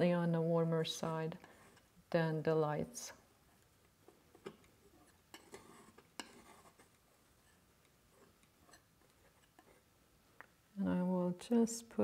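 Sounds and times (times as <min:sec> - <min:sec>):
palette knife scraping paint: 0:05.0 - 0:09.9.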